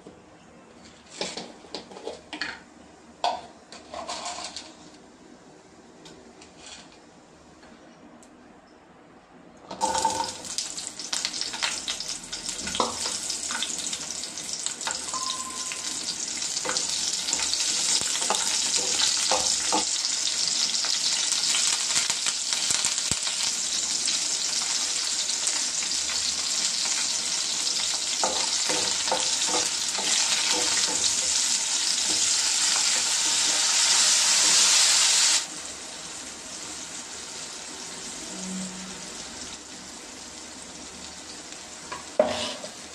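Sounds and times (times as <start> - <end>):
spoon scraping a pan: 3.7 - 4.8, 42.2 - 42.8
onions sizzling in hot oil: 9.8 - 42.9.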